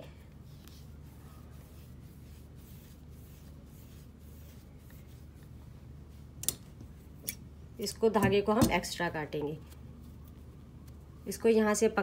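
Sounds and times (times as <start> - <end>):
steady low hum: 0.0 - 12.0
wool yarn rustling: 0.3 - 7.2.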